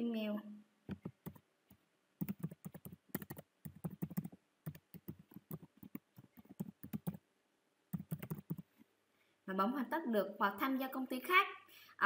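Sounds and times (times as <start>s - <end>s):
computer keyboard typing: 0.9s - 1.4s, 2.2s - 7.2s, 7.9s - 8.7s.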